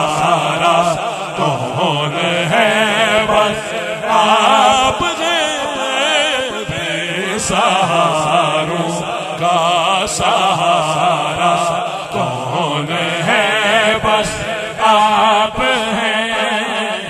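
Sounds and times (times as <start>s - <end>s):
men singing devotional song: 0.0s - 17.0s.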